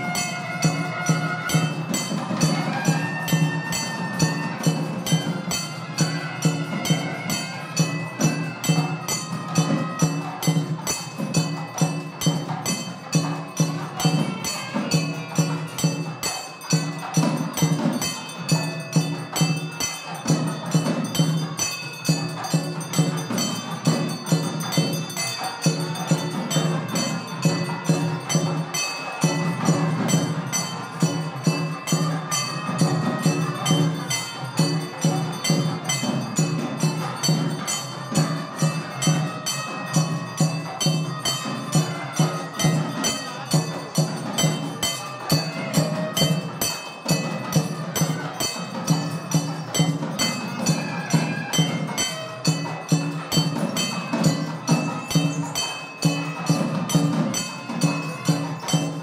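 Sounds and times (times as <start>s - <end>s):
percussive strikes: 0.0s - 59.0s.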